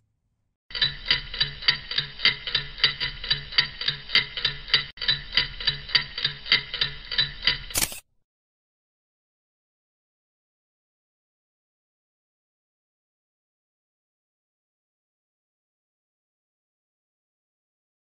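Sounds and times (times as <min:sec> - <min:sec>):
clock ticking: 0:00.7 - 0:07.7.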